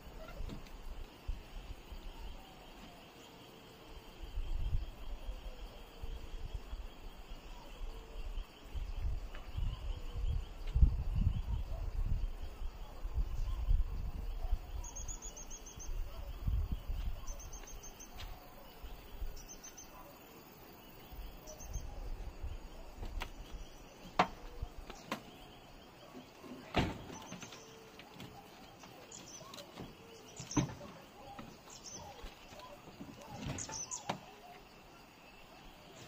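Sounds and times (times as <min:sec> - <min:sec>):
insects chirping: 0:00.0 - 0:36.0
low gusty rumble: 0:15.8 - 0:17.6.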